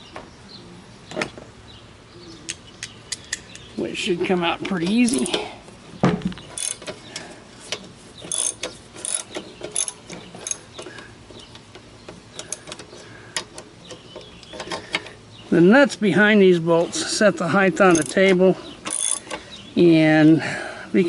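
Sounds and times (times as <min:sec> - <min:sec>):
ratchet wrench clicking: 0:06.6 - 0:06.9, 0:08.3 - 0:10.6, 0:17.9 - 0:19.4.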